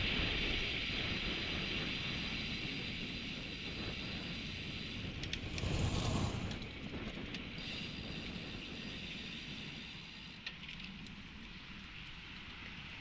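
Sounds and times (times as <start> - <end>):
wind rushing on microphone: 0.0 - 9.1
low rumble: 5.1 - 7.3
motor vehicles passing: 5.4 - 6.8.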